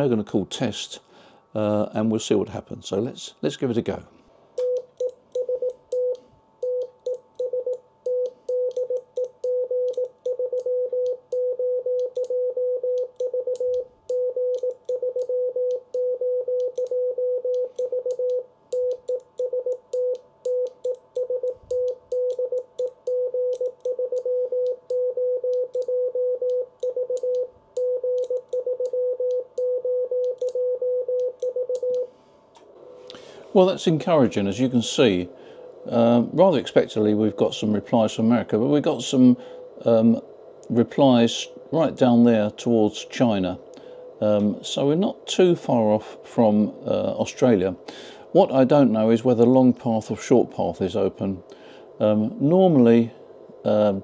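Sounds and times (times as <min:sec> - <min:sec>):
morse code beeps: 0:04.6 - 0:32.1.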